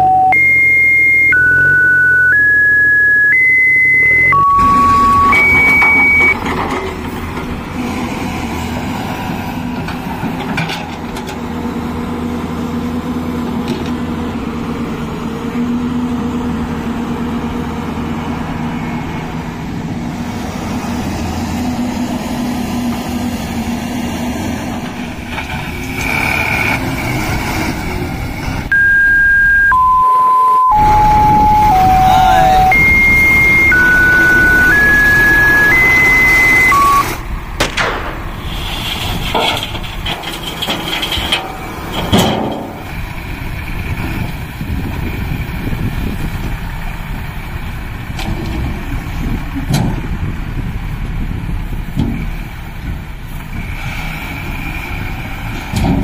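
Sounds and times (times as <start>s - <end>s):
electronic beep tune: 0.0s - 6.4s, 28.7s - 37.2s
excavator engine running: 0.0s - 56.0s.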